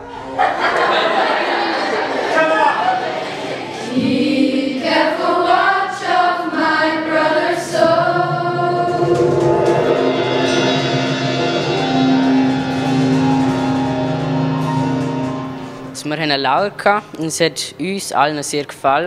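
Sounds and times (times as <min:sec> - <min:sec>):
teenage choir singing: 0:00.3 - 0:14.6.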